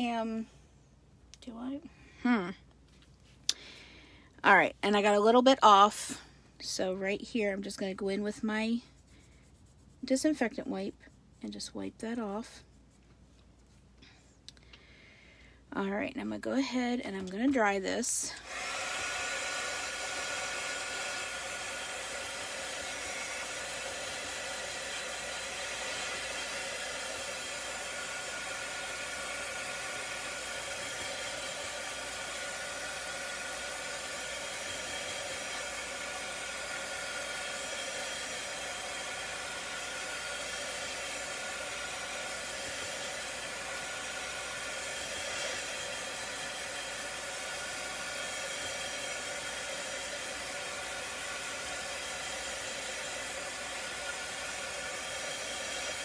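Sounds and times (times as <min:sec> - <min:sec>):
craft dryer blowing air: 0:18.3 - 0:56.0.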